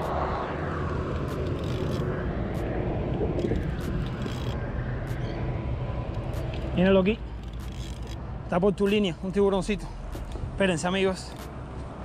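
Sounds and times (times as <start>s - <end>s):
wind buffeting microphone: 0.0s - 8.2s
fishing reel clicks: 1.1s - 2.1s, 3.4s - 4.6s, 7.3s - 8.2s.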